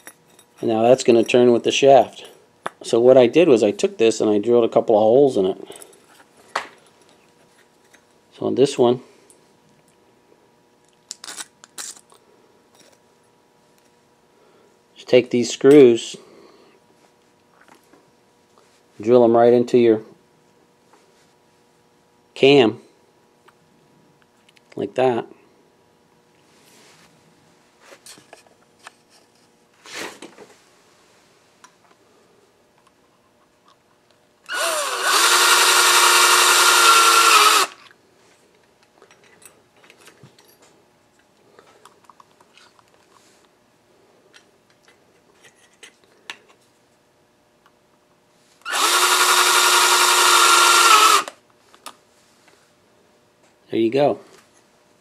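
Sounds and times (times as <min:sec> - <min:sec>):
cordless drill driving screws: 0:34.5 - 0:37.8, 0:48.6 - 0:51.4.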